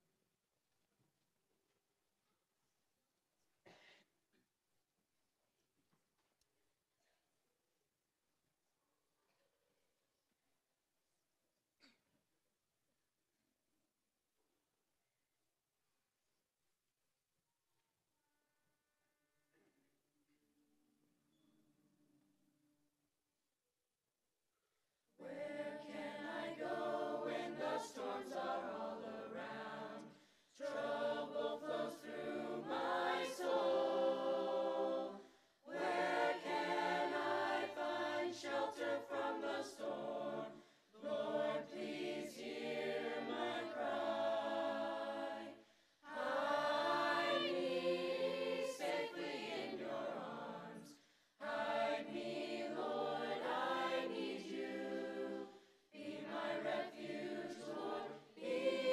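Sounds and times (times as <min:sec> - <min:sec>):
choir singing: 0:25.2 - 0:58.9.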